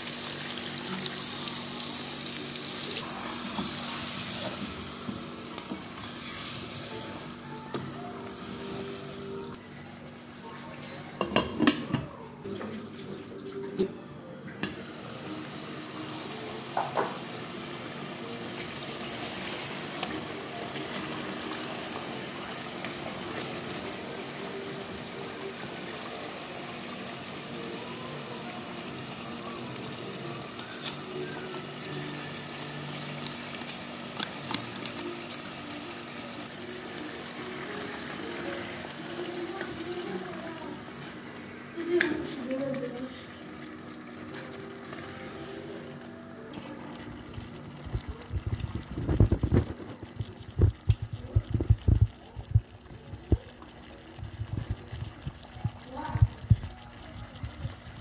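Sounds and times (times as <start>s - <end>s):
food bubbling in a pot: 40.8s - 58.0s.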